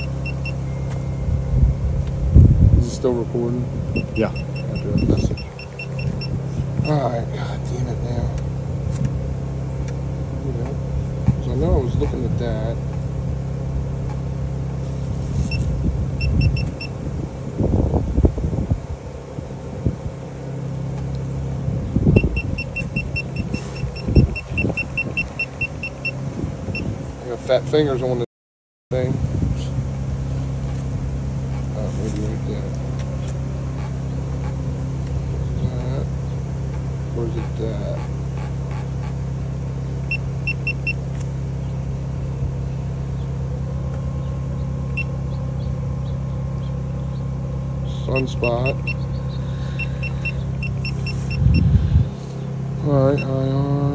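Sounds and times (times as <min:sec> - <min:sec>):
high-pitched electronic beeping: 0:00.0 - 0:01.4, 0:04.0 - 0:07.0
steady low hum: 0:00.0 - 0:28.2, 0:28.9 - 0:53.9.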